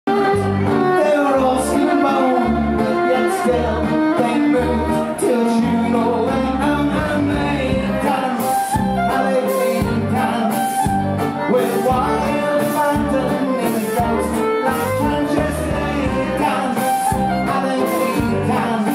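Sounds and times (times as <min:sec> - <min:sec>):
bowed fiddle melody: 0:00.1 - 0:18.9
drum kit steady beat: 0:07.0 - 0:18.9.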